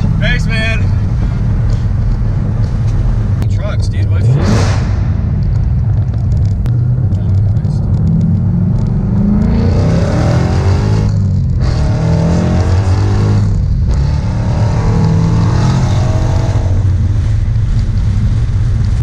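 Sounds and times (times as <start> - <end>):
car engine accelerating hard: 0.0 - 19.0.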